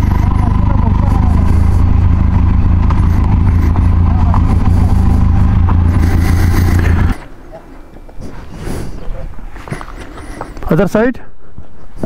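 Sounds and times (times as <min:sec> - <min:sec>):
motorcycle engine idling: 0:00.0 - 0:07.4.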